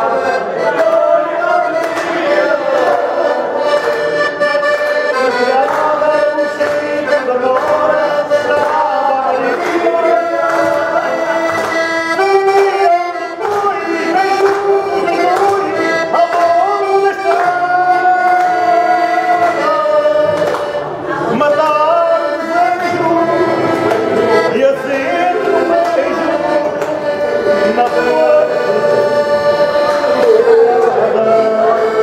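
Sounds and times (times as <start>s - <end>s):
men singing: 0.0s - 4.3s, 5.1s - 32.0s
accordion playing a tune: 0.0s - 32.0s
hand clapping: 0.3s - 22.0s, 22.6s - 28.8s, 29.6s - 31.3s.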